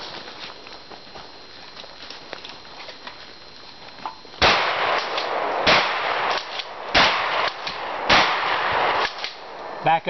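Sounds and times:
shotgun blasts: 0:04.4 - 0:09.6.

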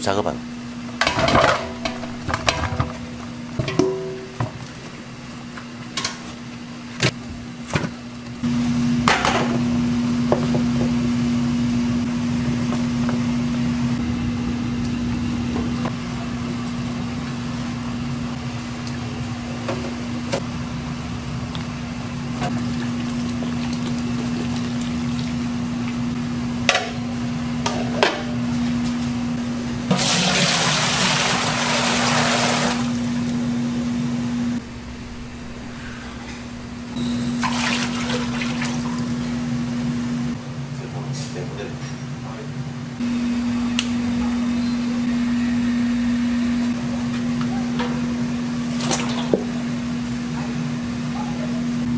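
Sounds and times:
steady machine hum: 0:00.0 - 0:51.9
water running and splashing: 0:22.5 - 0:26.1, 0:37.4 - 0:39.3.

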